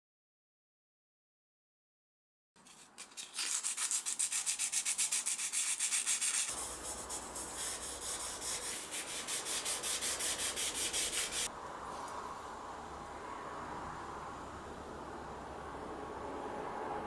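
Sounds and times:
sandpaper rubbing on copper: 2.6s - 11.5s
tissue wiping copper: 2.6s - 11.5s.

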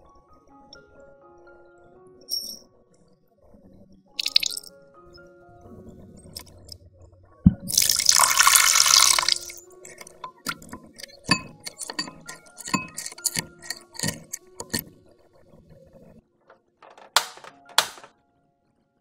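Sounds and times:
spoon clinking against glass: 4.2s - 4.7s, 7.7s - 14.9s
spoon knock: 7.5s - 14.8s
liquid swishing: 7.7s - 14.9s.

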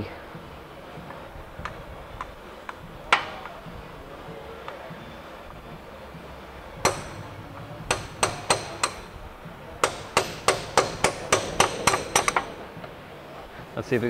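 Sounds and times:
hammer striking steel bar: 6.8s - 9.2s, 9.8s - 12.6s.

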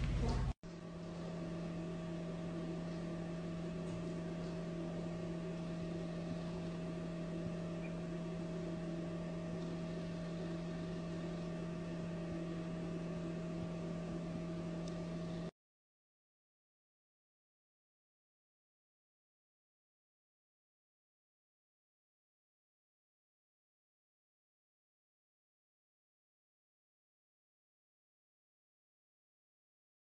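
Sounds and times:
steady tonal hum: 0.0s - 15.5s.

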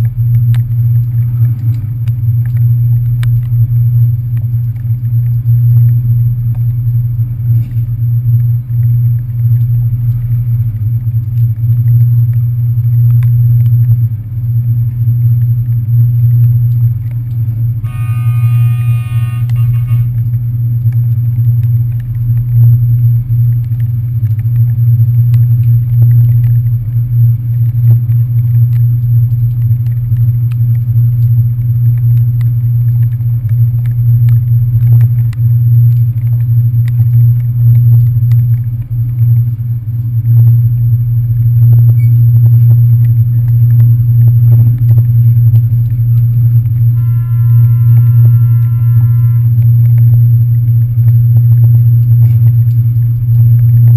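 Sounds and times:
rain ticking on camera housing: 0.0s - 53.9s
brief high tone: 17.8s - 20.2s, 47.0s - 49.6s
ferry engines droning: 17.8s - 20.3s, 47.0s - 49.8s.

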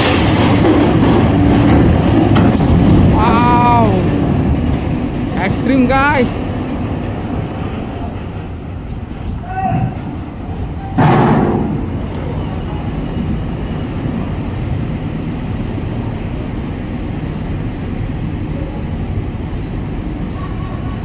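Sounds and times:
diesel engine rumbling: 0.0s - 21.0s.

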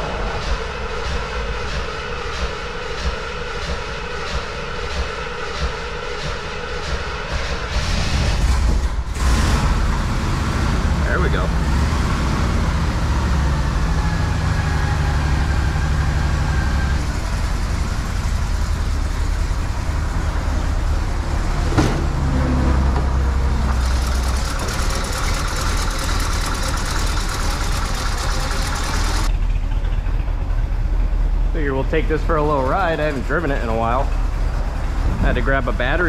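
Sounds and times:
car engine idling: 7.8s - 36.0s.

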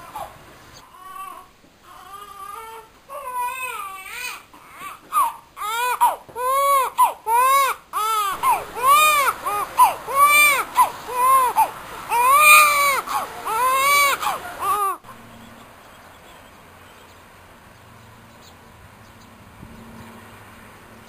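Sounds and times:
infant crying: 0.0s - 15.0s.

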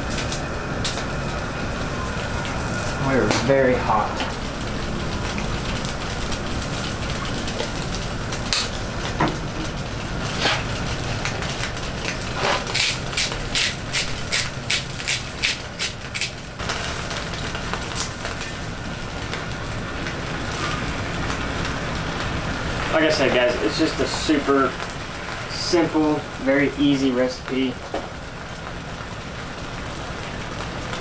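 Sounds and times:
gas burner running: 0.0s - 31.0s
seasoning shaker shaking: 12.6s - 16.4s.

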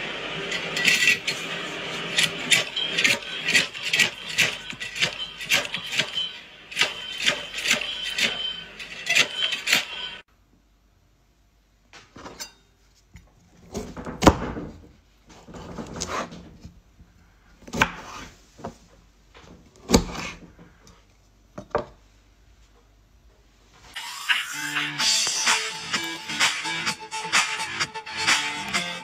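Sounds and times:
vegetable cutter metallic clanks: 0.4s - 10.2s.

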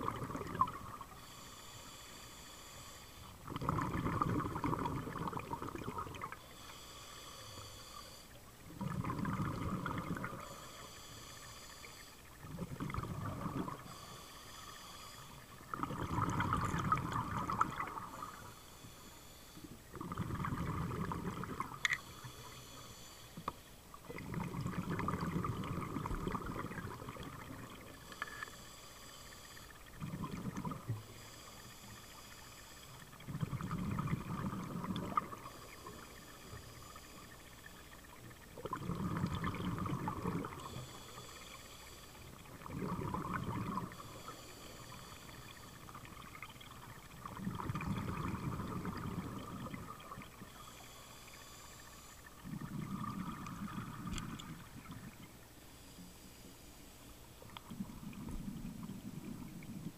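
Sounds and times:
bubbling exhale: 0.0s - 56.2s
regulator hissing inhale: 1.0s - 3.4s, 6.4s - 8.4s, 10.3s - 12.4s, 13.7s - 15.7s, 17.4s - 19.9s, 21.8s - 23.8s, 27.6s - 30.0s, 30.8s - 33.2s, 34.8s - 38.1s, 40.2s - 42.5s, 43.8s - 47.1s, 50.0s - 52.7s, 55.6s - 57.5s.

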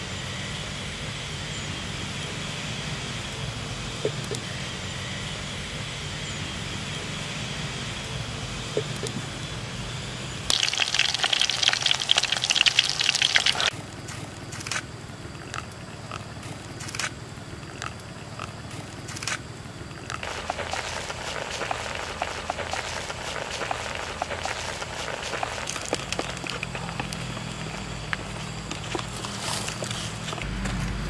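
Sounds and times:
water dripping: 10.5s - 13.7s
water splashing into a tub: 10.5s - 13.7s, 20.2s - 25.8s.

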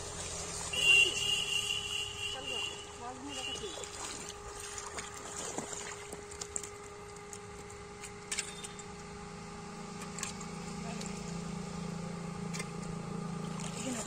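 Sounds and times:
motor humming: 0.0s - 14.0s
splashes in shallow water: 2.5s - 7.0s.

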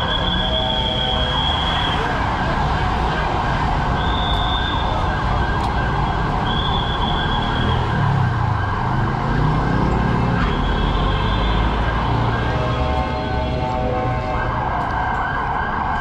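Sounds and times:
traffic engines rumbling: 0.0s - 16.0s.

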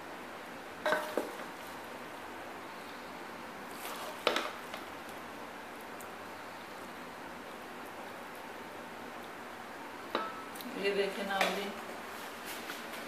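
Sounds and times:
wooden spoon scraping pot: 3.8s - 4.8s.

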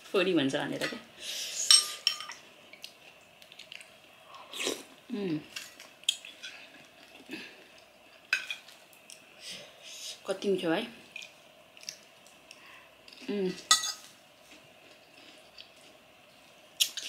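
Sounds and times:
quiet chewing: 2.8s - 4.9s, 11.2s - 13.3s.

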